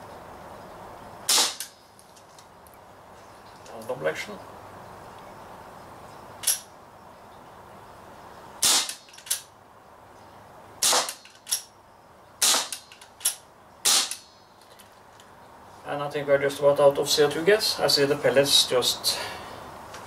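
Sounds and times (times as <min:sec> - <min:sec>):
bb revolver shots: 0:01.3 - 0:01.8, 0:08.6 - 0:09.5, 0:10.8 - 0:11.7, 0:12.4 - 0:14.3.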